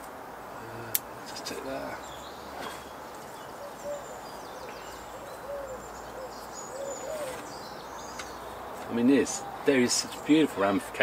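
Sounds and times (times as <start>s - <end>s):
pigeon cooing: 2.7s - 7.6s.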